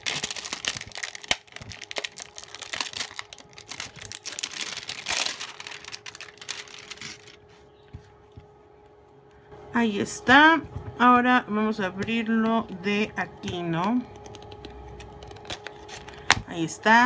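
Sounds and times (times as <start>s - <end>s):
plastic shrink wrap crinkling: 0.0s - 7.8s.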